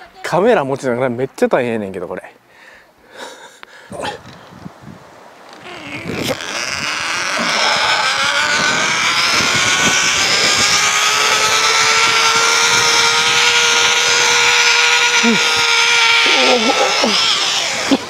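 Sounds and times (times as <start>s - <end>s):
zipline pulleys whirring on cable: 5.5s - 18.0s.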